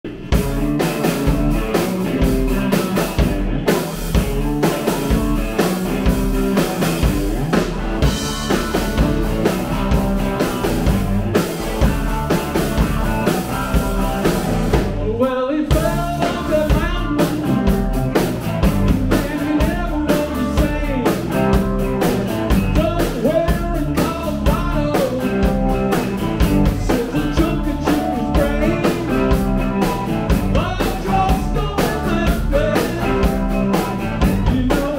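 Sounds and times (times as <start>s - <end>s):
rock band playing live: 0.0s - 34.9s
lead vocal singing: 14.8s - 17.8s, 19.0s - 21.3s, 22.7s - 25.8s, 26.6s - 34.9s.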